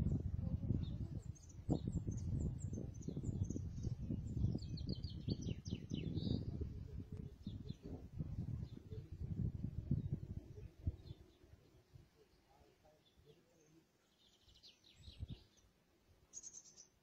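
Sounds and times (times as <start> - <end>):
low rumble on microphone: 0.0 - 11.3
small birds chirping: 0.0 - 17.0.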